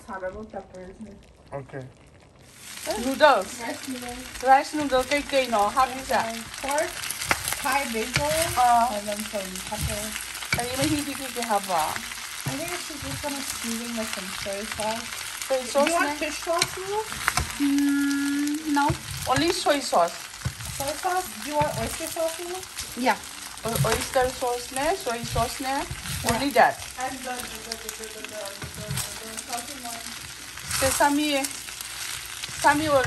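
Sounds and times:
food sizzling in a wok: 0:00.0 - 0:33.0
wooden spatula stirring: 0:04.5 - 0:17.6, 0:18.7 - 0:33.0
wavering pitched sounds: 0:09.7 - 0:19.6.

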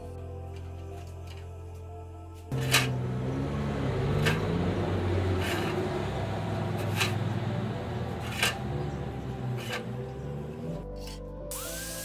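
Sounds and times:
background music with low notes: 0:00.0 - 0:12.0.

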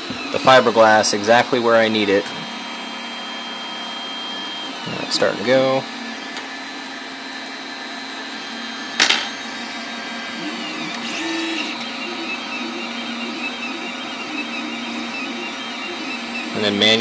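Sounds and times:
stepper motors whining in tones: 0:00.0 - 0:17.0
steady hum: 0:10.4 - 0:17.0.

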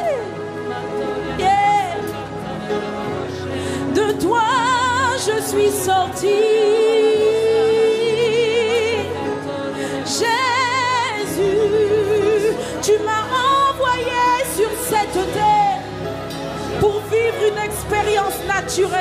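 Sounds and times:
woman singing: 0:00.0 - 0:16.0, 0:16.6 - 0:19.0
sustained accompaniment chords: 0:00.0 - 0:19.0.

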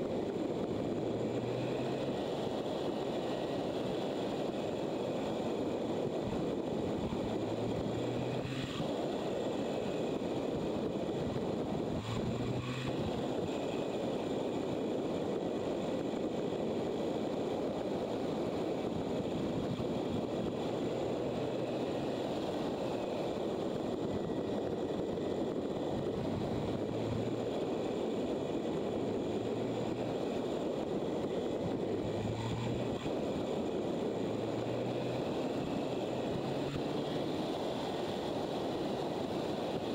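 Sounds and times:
road noise: 0:00.0 - 0:39.9
wind rush: 0:00.0 - 0:39.9.

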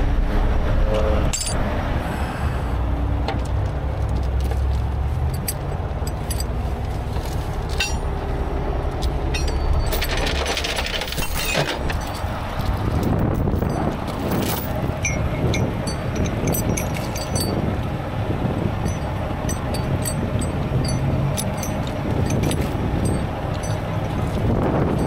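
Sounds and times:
low rumble of engines and traffic: 0:00.0 - 0:25.0
chain links clinking and rattling: 0:01.3 - 0:01.6, 0:05.2 - 0:08.2, 0:09.0 - 0:17.7, 0:18.7 - 0:25.0
wind on microphone: 0:11.8 - 0:25.0.

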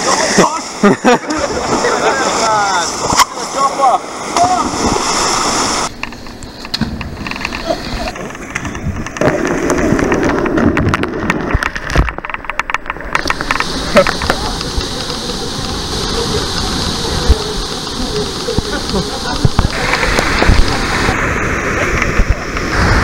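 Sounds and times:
waterfall rushing: 0:00.0 - 0:06.4, 0:11.4 - 0:23.0
water splashing in pool: 0:00.0 - 0:23.0.

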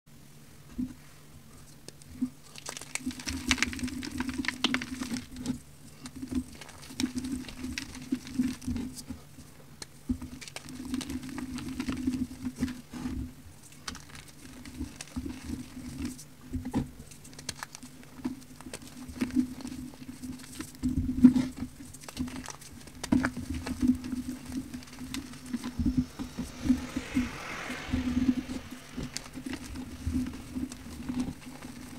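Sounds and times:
crumbs pattering: 0:13.6 - 0:16.2, 0:17.0 - 0:26.0, 0:29.0 - 0:31.9.

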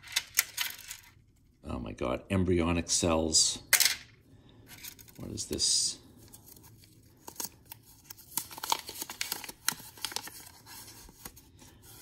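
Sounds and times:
paper crinkling and rustling: 0:06.2 - 0:12.0.

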